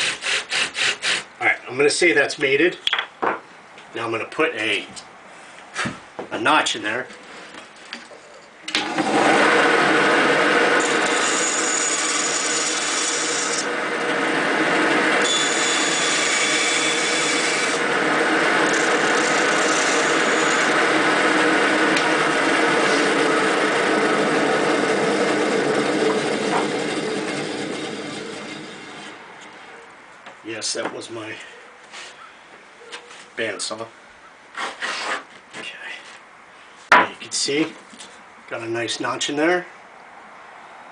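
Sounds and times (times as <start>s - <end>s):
band saw cutting wood: 0.0s - 1.3s, 8.8s - 29.2s.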